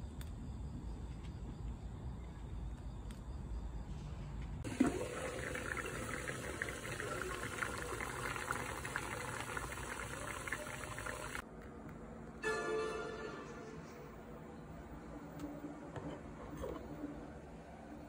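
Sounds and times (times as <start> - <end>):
water boiling in a pot: 4.6 - 11.4.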